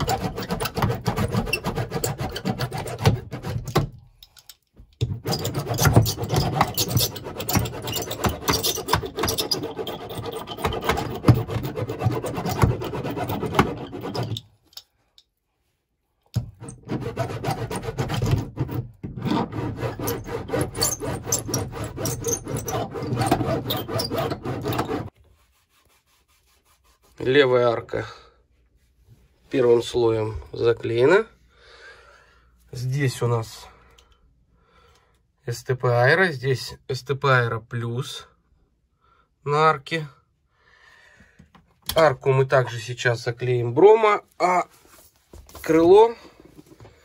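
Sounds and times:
hand rubbing and scraping strokes: 0.0s - 3.7s, 5.1s - 15.9s, 16.5s - 27.7s, 44.4s - 47.0s.

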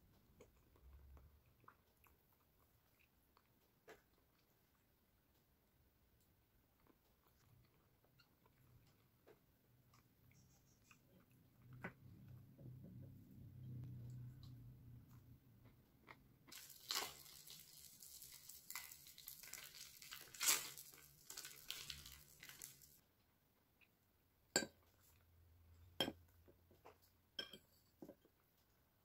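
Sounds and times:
plastic pouch crinkling: 16.5s - 23.0s.

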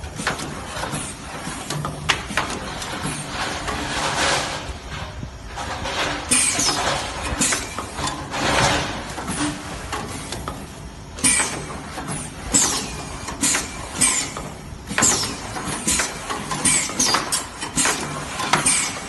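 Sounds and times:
punching machine strokes: 6.0s - 19.0s.

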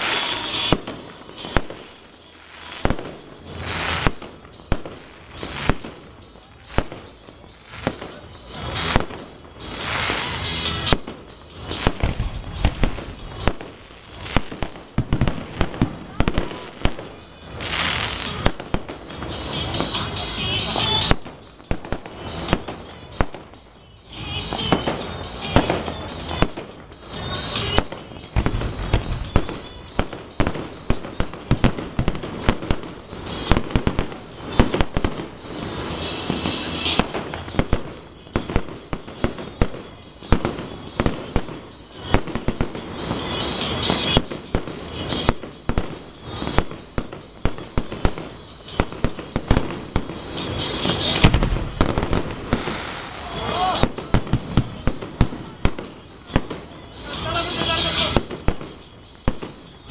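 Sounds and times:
firework shell bursts: 0.0s - 2.2s, 24.4s - 59.9s
firework hissing: 0.0s - 23.4s, 24.2s - 59.9s
firework crackling: 0.0s - 59.9s.

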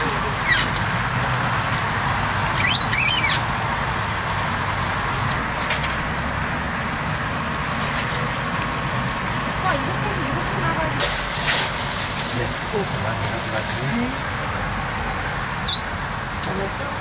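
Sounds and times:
bird chirping: 15.5s - 16.2s.

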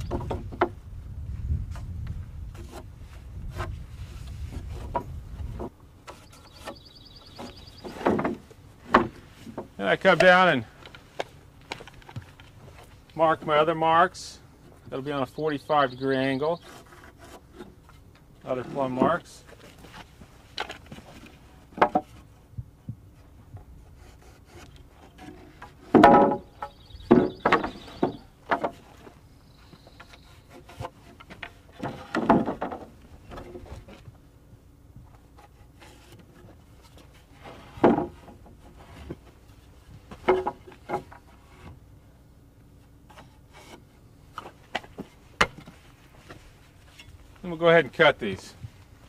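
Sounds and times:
pencil scraping on lumber: 16.6s - 18.0s, 23.8s - 25.6s.

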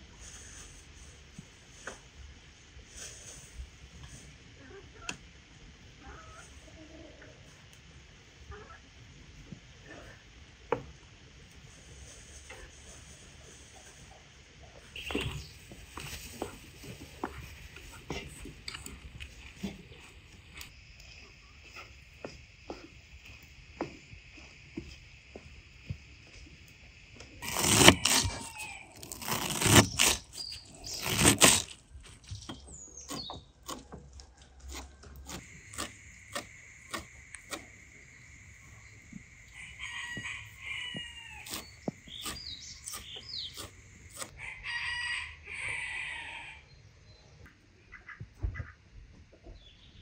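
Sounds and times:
rooster crowing: 27.4s - 29.4s, 39.5s - 41.7s, 44.2s - 46.6s
poultry calling: 39.4s - 46.6s.

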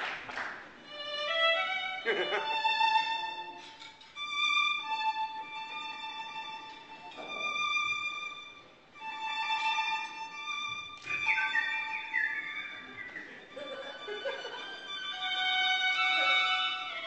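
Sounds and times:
violin playing sustained notes: 0.8s - 17.0s.

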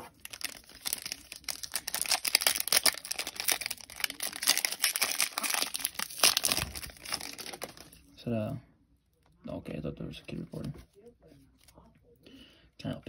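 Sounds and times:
foil pack tearing and crinkling: 0.0s - 8.0s.

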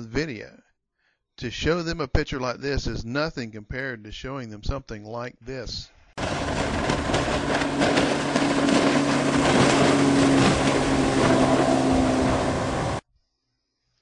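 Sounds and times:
motorboat engine hum: 6.2s - 13.0s
water rushing: 6.2s - 13.0s.

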